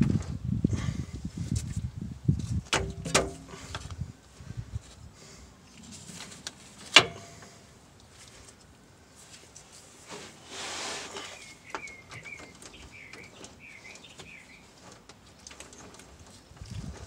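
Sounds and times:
rustling hiss: 5.2 - 11.5
bird chirping: 11.2 - 14.8.

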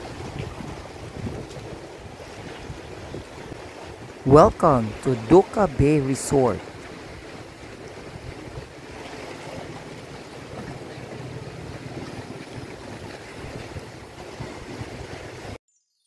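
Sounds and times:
wind rumbling on microphone: 0.0 - 5.1, 6.6 - 15.6
sea waves washing against rocks: 0.0 - 15.6.

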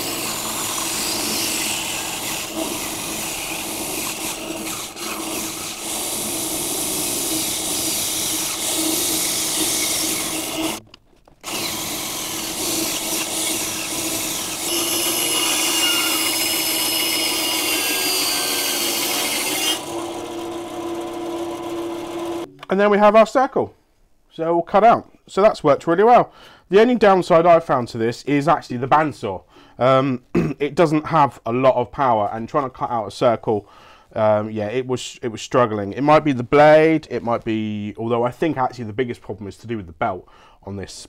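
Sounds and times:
bandsaw motor hum: 0.0 - 10.8, 11.4 - 22.5
saw blade rasping through wood: 0.0 - 10.8, 11.5 - 20.4.

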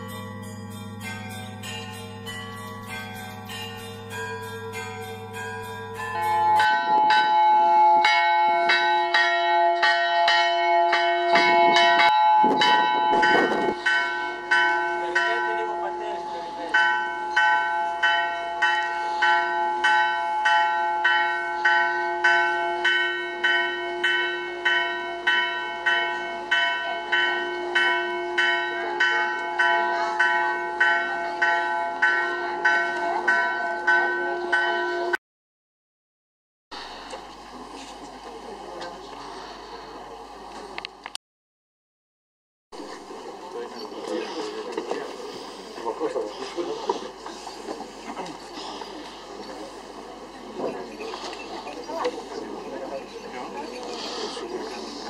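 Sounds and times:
church bells ringing: 0.0 - 35.2.

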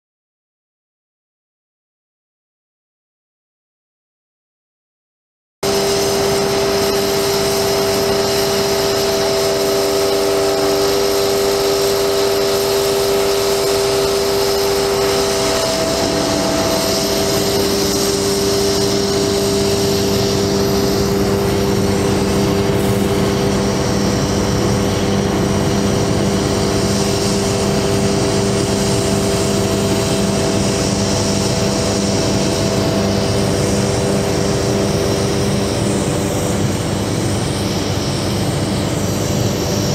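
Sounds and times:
hydraulic pump whining: 5.6 - 39.9
truck engine running: 5.8 - 36.0.

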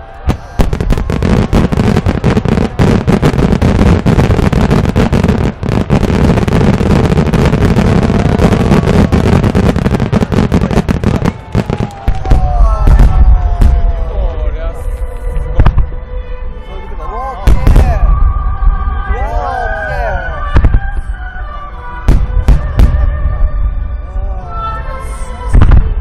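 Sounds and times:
whistling fireworks: 0.0 - 14.2, 17.5 - 21.4, 22.0 - 26.0
deep booms: 0.3 - 14.2.

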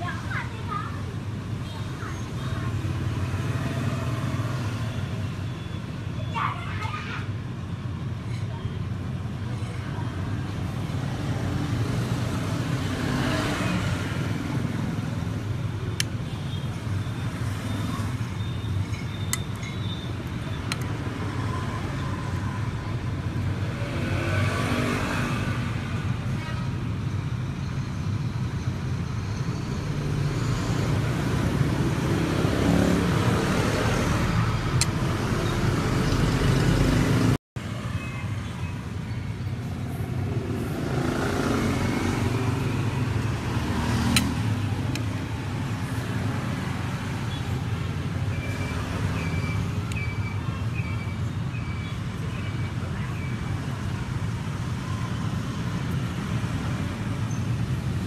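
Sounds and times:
road traffic rumble: 0.0 - 58.0.

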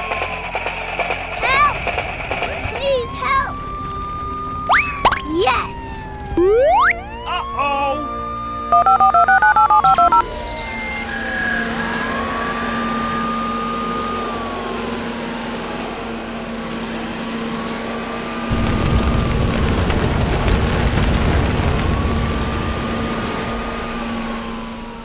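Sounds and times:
electronic two-pitch beeps: 6.4 - 7.0, 8.7 - 10.3
mechanical hum with whine: 9.8 - 25.0
loud rushing noise: 18.4 - 24.9.

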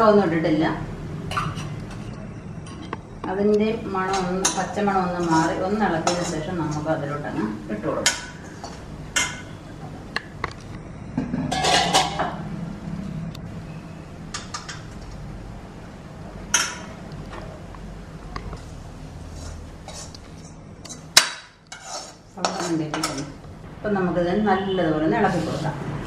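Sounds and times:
metal spatula scraping a pan: 4.1 - 9.6, 19.2 - 23.4, 25.2 - 25.8.

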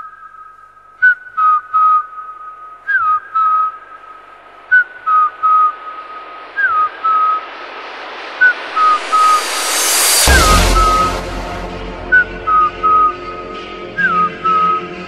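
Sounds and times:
whistled lead melody: 1.0 - 7.6, 8.4 - 15.0
rising noise sweep: 3.8 - 14.1
heavy bass kick: 9.0 - 13.7.

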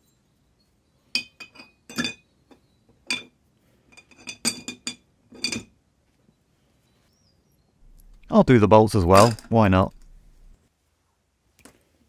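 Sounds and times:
metal brackets clinking in glass jar: 8.8 - 10.5.

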